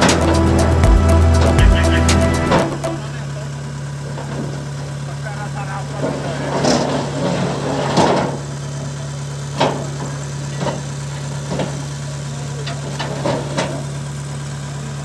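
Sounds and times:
engine idling: 0:00.0 - 0:15.0
metal ramps clanking: 0:06.0 - 0:08.5.

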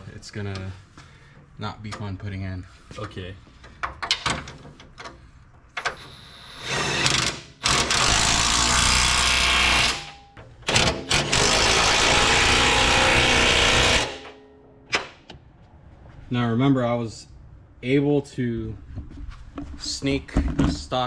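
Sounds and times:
power wrench running bolts: 0:05.8 - 0:14.4.

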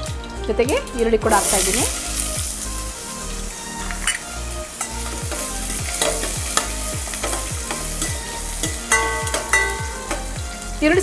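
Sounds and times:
onions sizzling in hot oil: 0:00.0 - 0:11.0
ladle clinking against pot: 0:07.2 - 0:10.3.

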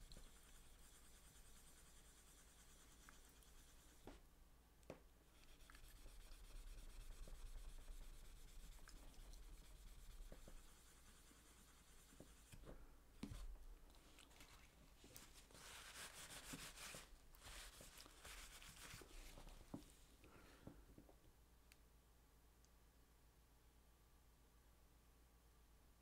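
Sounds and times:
rubbing and scratching on metal: 0:05.4 - 0:12.7
tissue wiping: 0:13.3 - 0:20.0.

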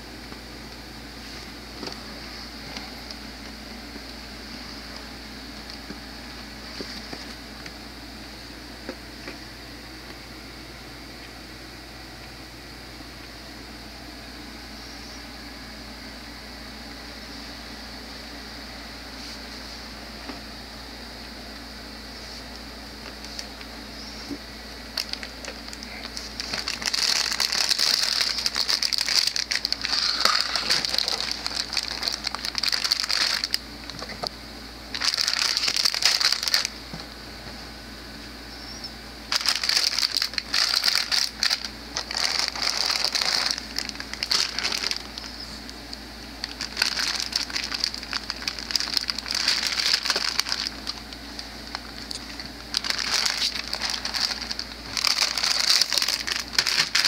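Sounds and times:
plastic bags crinkling: 0:24.9 - 0:34.3, 0:34.9 - 0:36.8, 0:39.3 - 0:57.0.

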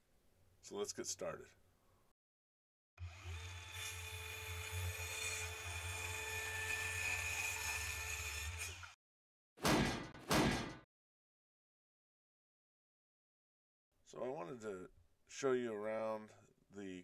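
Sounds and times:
electric power tool running: 0:03.0 - 0:04.9.

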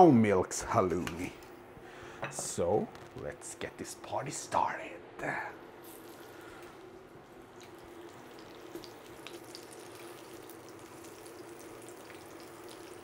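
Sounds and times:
low steady hum: 0:00.0 - 0:13.0
cheese sizzling in a frying pan: 0:05.8 - 0:13.0.

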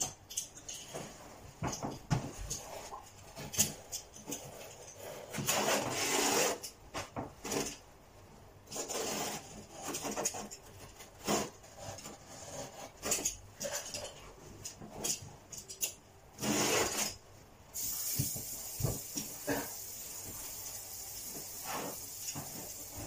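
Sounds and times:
steady hiss: 0:16.4 - 0:23.0.

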